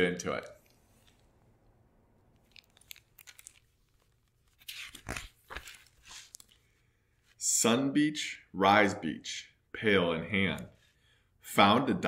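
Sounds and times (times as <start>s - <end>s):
paper crinkles and page rustles: 2.3s - 6.7s.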